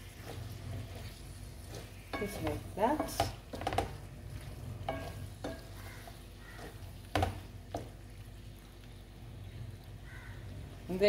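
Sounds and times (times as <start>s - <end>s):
wooden spoon scraping pan: 0.0s - 7.9s
low sizzle: 0.0s - 11.0s.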